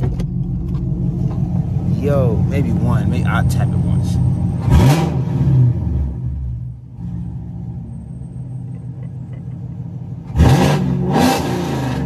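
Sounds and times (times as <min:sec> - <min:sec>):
car engine idling with deep rumble: 0:00.0 - 0:04.9
engine revving: 0:02.0 - 0:07.5, 0:10.2 - 0:12.0.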